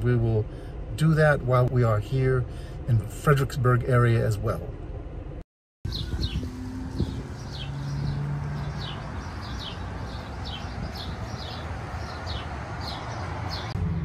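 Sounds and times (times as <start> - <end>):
street traffic rumble: 0.0 - 14.0
small bird chirping: 5.9 - 13.8.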